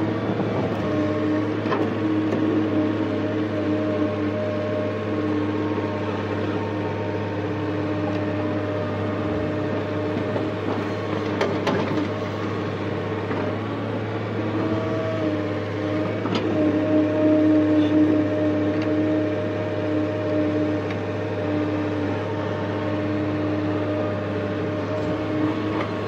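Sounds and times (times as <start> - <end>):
excavator diesel engine running: 0.0 - 26.0
hydraulic whine: 0.0 - 26.0.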